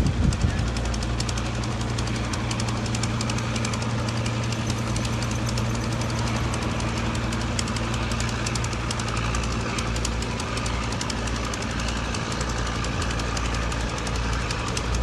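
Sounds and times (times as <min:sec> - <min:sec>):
engine idling: 0:00.0 - 0:15.0
fast regular knocking tick: 0:00.0 - 0:15.0.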